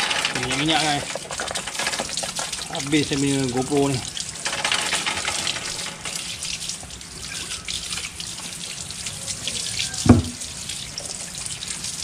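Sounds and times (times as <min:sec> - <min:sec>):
hose water splashing on chain: 0:00.0 - 0:12.0
short thump: 0:10.1 - 0:10.4.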